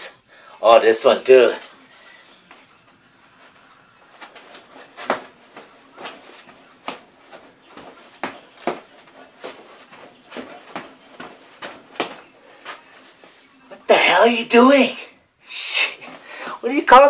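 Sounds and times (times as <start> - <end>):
feet stomping on wooden floor: 4.2 - 12.8.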